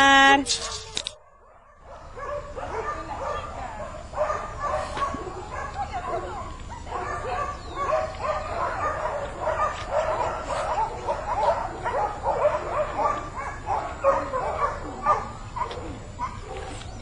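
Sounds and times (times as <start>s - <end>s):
dogs barking and yelping: 0.5s - 17.0s.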